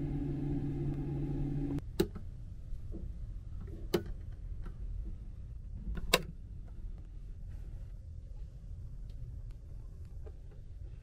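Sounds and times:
exhaust fan humming: 0:00.0 - 0:01.8.

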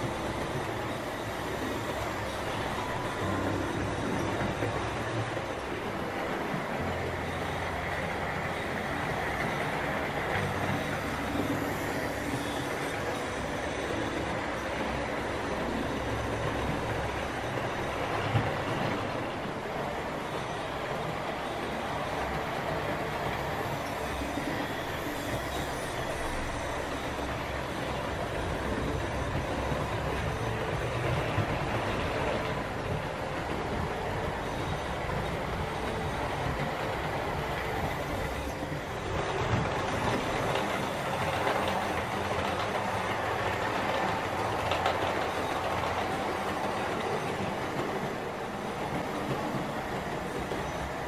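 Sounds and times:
model train running on track: 0:00.0 - 0:51.0.

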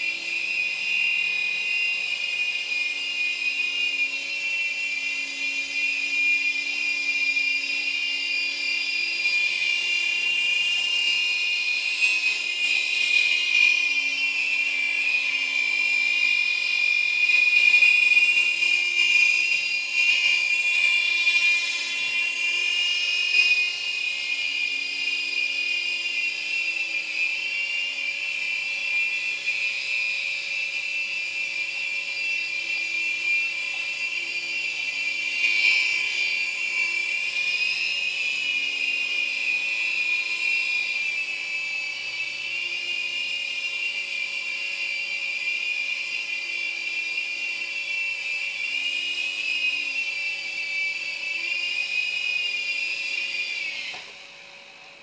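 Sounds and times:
toy helicopter rotor whine: 0:00.0 - 0:55.0.

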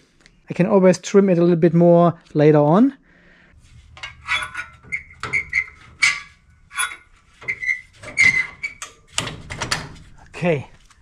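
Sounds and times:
clicks and scrapes of door seal: 0:03.8 - 0:10.2.

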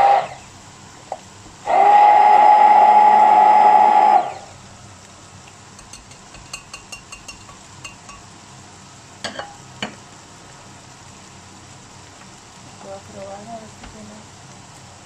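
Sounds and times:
faint pan sizzle: 0:00.0 - 0:15.0
blender shaft clinking on glass: 0:05.8 - 0:08.3.

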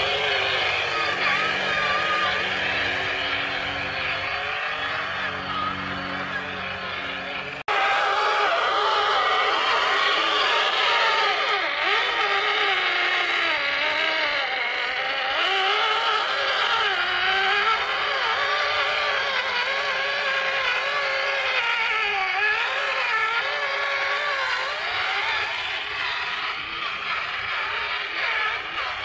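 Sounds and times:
toy truck electric motor whine: 0:00.0 - 0:29.0.

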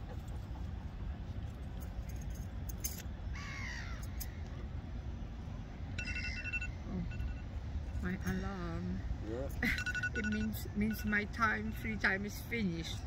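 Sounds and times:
crow cawing: 0:03.4 - 0:04.0
electronic alarm tone: 0:06.0 - 0:08.0, 0:09.7 - 0:11.8.

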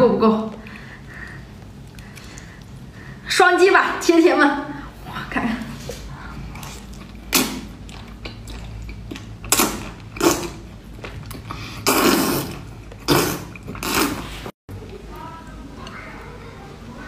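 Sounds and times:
wet slurping and sucking: 0:06.4 - 0:14.5.

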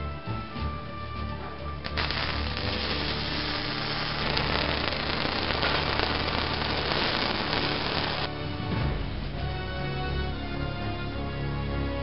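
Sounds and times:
welding arc crackling hiss: 0:01.8 - 0:08.3.

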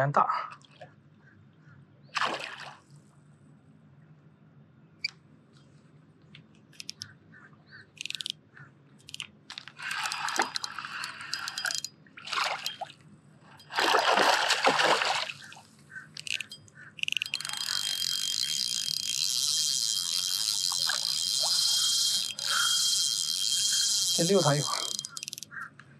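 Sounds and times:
fish splashing and thrashing: 0:02.2 - 0:02.9, 0:09.1 - 0:13.0, 0:13.6 - 0:25.6
short clicks: 0:08.0 - 0:08.4, 0:16.2 - 0:25.5.

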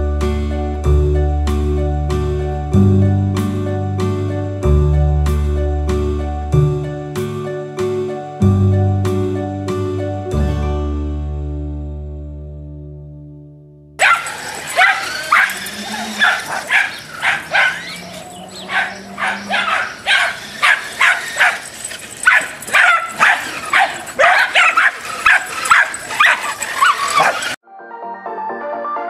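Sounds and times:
puppies yapping: 0:14.0 - 0:27.6.

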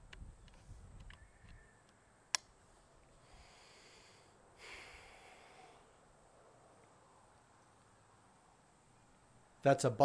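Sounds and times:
person breathing out: 0:03.2 - 0:06.0.

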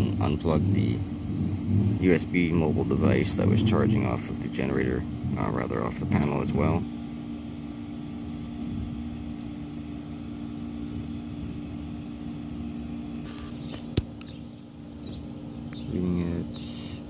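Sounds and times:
faint rumble: 0:00.0 - 0:07.5
low mechanical hum: 0:00.0 - 0:17.0.

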